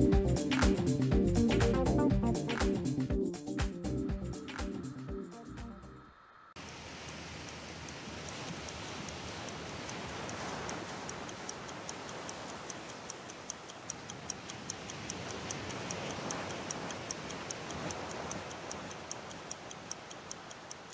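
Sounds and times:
fast even ticking: 6.6 - 20.9
surf washing up beach: 6.6 - 20.9.

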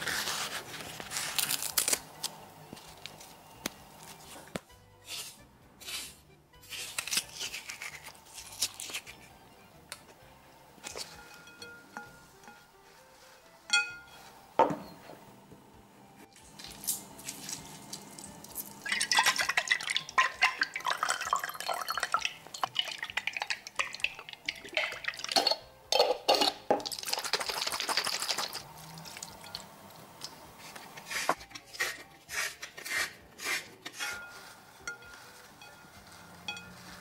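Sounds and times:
glass clinks: 13.7 - 15.0
oil pouring into glass jar: 18.8 - 25.5
liquid dripping and splashing: 18.8 - 25.6, 26.8 - 28.6.

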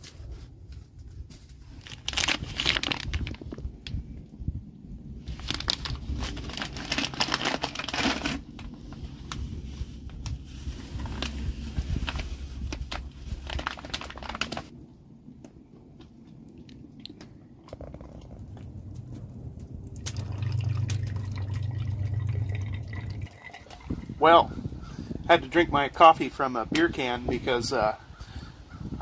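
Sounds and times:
foil bag crinkling: 1.2 - 3.6, 5.3 - 14.7
ground coffee pouring into pot: 20.0 - 24.0.

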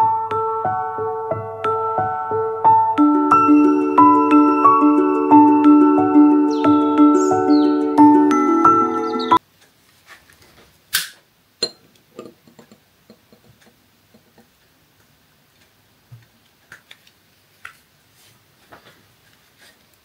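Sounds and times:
mallet percussion music: 0.3 - 9.4
light clicks and knocks: 11.6 - 14.6.

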